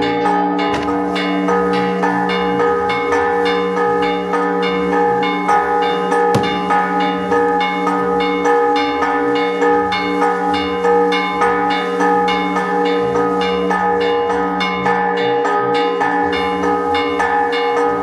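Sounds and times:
church bells pealing: 0:00.0 - 0:18.0
sharp bang: 0:06.4 - 0:06.9.

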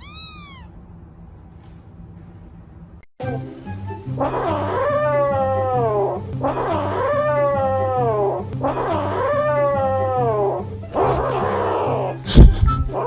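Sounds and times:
kitten meowing: 0:00.0 - 0:00.7.

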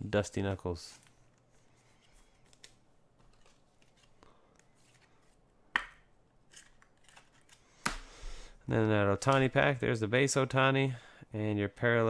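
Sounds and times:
cards sliding with light ticks: 0:00.8 - 0:05.4.

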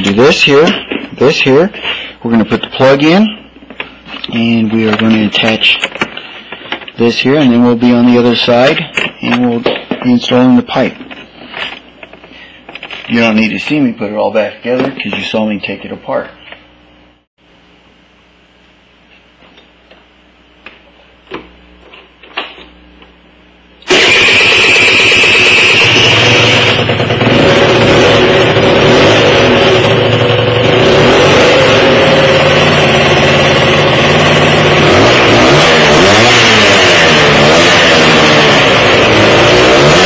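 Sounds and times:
scooter engine running and revving: 0:23.9 - 0:40.0.

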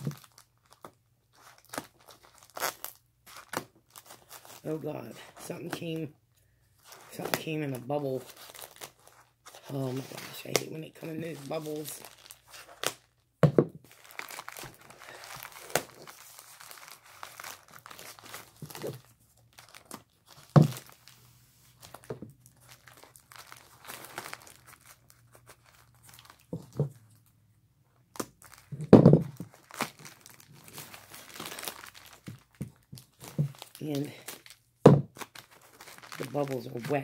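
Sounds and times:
plastic and tape crinkling and tearing: 0:00.0 - 0:06.2, 0:06.8 - 0:37.0
dull knocks of package: 0:13.4 - 0:13.9, 0:20.5 - 0:20.9, 0:28.7 - 0:29.5, 0:34.8 - 0:35.2.

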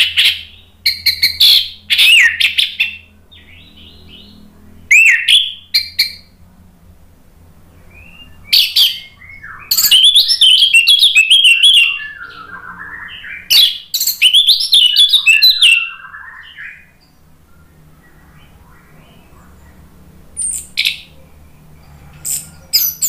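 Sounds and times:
thrush singing whistled phrases: 0:04.9 - 0:06.2, 0:07.8 - 0:17.0
quiet low warbling: 0:11.8 - 0:13.7.

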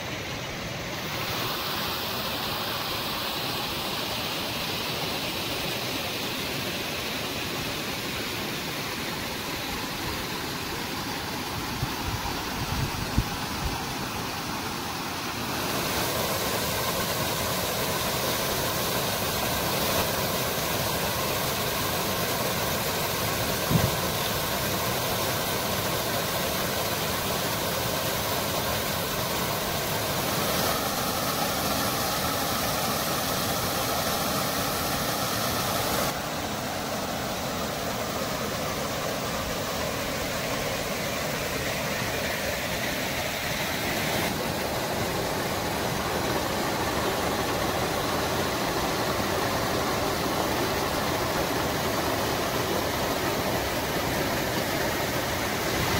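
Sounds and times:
waterfall splashing into pool: 0:00.0 - 0:55.9
short thump: 0:23.7 - 0:24.0.

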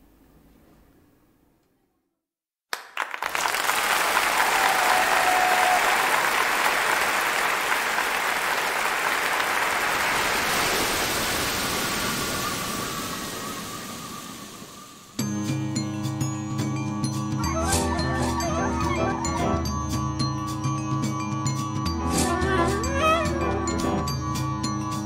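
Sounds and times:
audience applause: 0:02.7 - 0:12.4.

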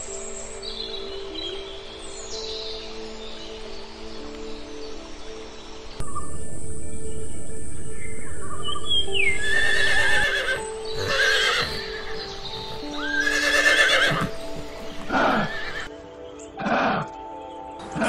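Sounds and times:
background music: 0:00.0 - 0:18.0
horse whinnying: 0:09.4 - 0:15.9.

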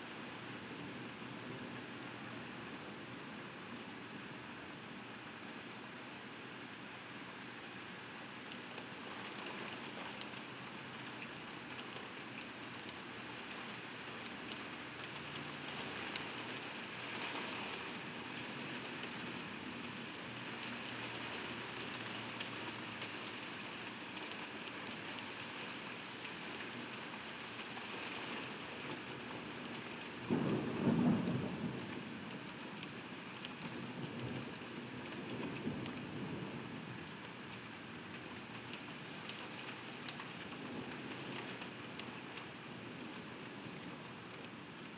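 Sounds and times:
heavy rain on window glass: 0:00.0 - 0:44.9
thunderclap rumbling: 0:30.3 - 0:32.0.

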